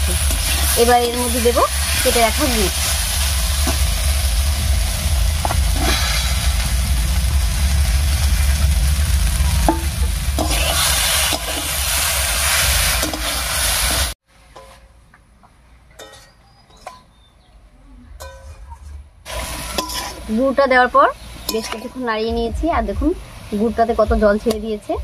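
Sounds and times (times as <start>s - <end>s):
low rumble: 0.0s - 13.0s
fruit sizzling in oil: 0.0s - 14.2s, 19.3s - 25.0s
spatula scraping pan: 10.4s - 11.8s, 18.3s - 20.4s, 21.4s - 22.0s.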